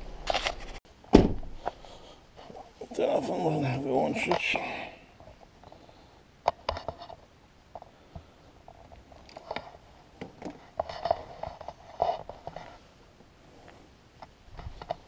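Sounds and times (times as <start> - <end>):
person moving inside a van: 0.0 - 4.8.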